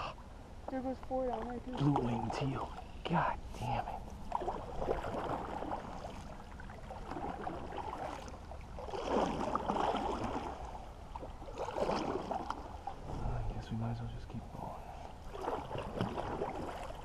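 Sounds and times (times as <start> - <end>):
water splashing against boat hull: 4.2 - 13.4, 15.0 - 17.0.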